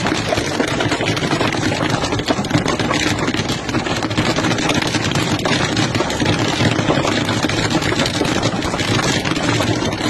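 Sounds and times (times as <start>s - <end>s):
rain and hail on car roof: 0.0s - 10.0s.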